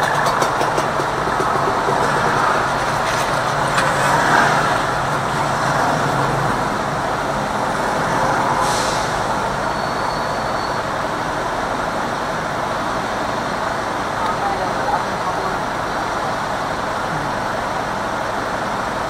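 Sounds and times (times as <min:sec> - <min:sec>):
city traffic: 0:00.0 - 0:19.0
road noise inside moving car: 0:00.0 - 0:19.0
short hiss: 0:08.6 - 0:09.3.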